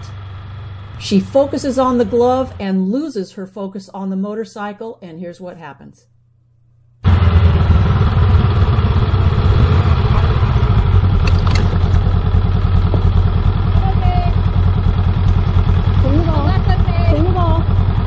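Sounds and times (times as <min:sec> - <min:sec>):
motorcycle engine running: 0:00.0 - 0:02.7, 0:07.0 - 0:18.0
motorcycle tipping over clatter: 0:10.2 - 0:13.8.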